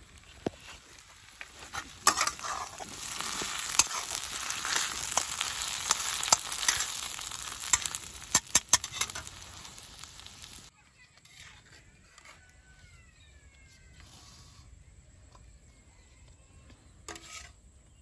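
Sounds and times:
meat sizzling in a wok: 0.0s - 10.7s
metal spatula scraping pan: 1.6s - 9.8s, 17.1s - 17.6s.

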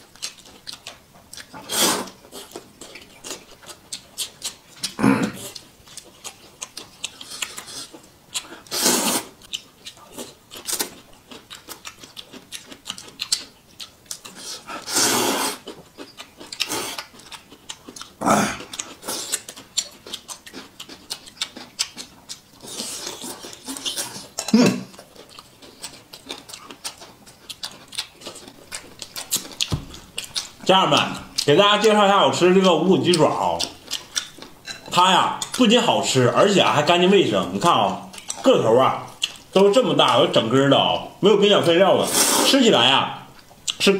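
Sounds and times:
wet chewing and crunching: 0.0s - 40.9s, 41.5s - 43.9s
noodles slurped: 1.5s - 2.5s, 8.6s - 9.4s, 14.3s - 15.8s.

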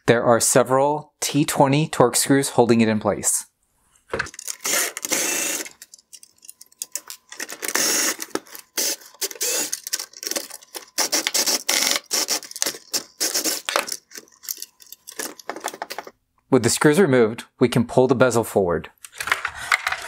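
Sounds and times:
screwdriver rapid clicking: 4.3s - 15.5s.

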